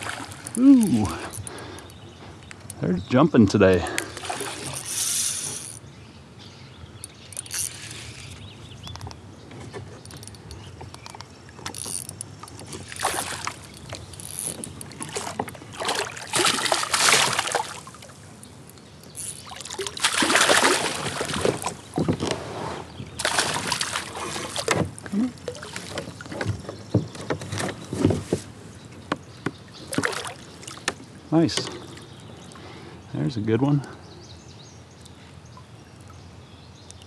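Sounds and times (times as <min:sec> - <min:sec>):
fish splashing at the surface: 0:04.1 - 0:05.4, 0:12.9 - 0:13.7, 0:14.9 - 0:18.2, 0:19.4 - 0:21.8, 0:23.2 - 0:24.7
knocks against a kayak: 0:25.9 - 0:30.2.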